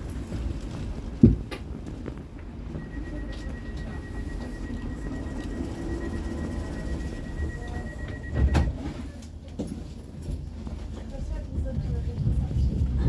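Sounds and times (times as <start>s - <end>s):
train interior low rumble: 0.0s - 13.0s
thin high tone: 2.8s - 8.5s.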